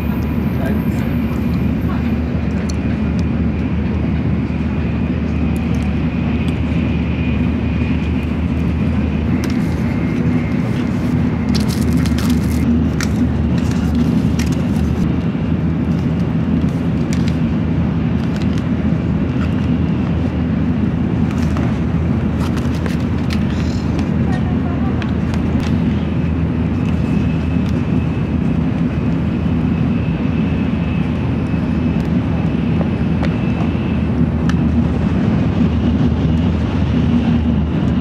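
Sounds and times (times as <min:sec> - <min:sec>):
train cabin low rumble: 0:00.0 - 0:38.0.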